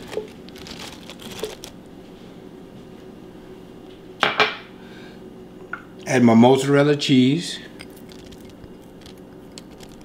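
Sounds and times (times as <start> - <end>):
tomatoes tapping and rustling: 0.0 - 1.8
low room hum: 0.0 - 10.0.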